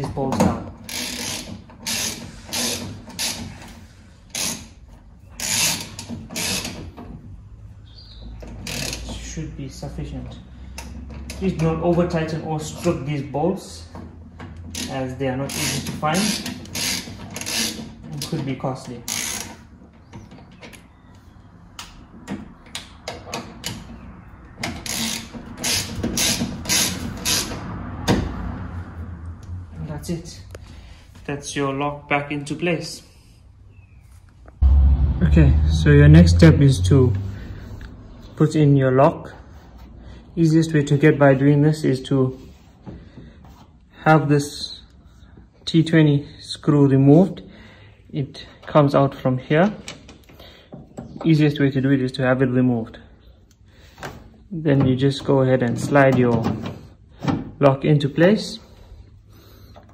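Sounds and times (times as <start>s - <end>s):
hand ratchet clicking: 0.9s - 3.4s.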